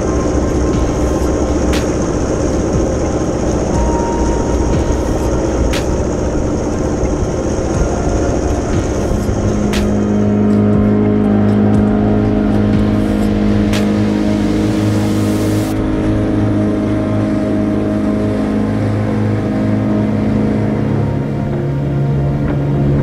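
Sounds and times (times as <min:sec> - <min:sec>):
outboard motor running: 0:00.0 - 0:23.0.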